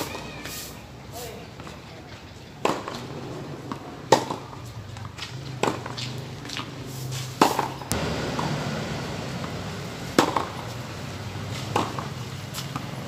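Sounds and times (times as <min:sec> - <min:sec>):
racket hitting tennis ball: 0:03.7 - 0:04.6, 0:05.6 - 0:06.0, 0:07.4 - 0:13.0.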